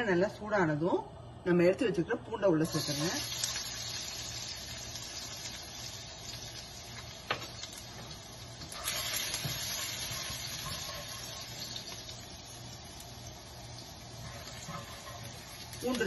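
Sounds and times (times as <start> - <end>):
garlic sizzling in hot oil: 2.6 - 16.0.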